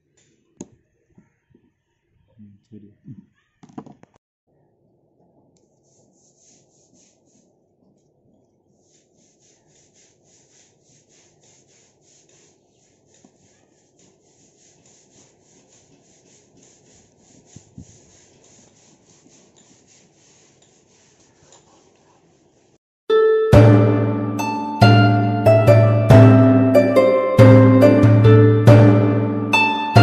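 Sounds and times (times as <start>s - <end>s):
gloved hands rubbing binoculars: 5.5s - 22.8s
harp music: 23.1s - 30.0s.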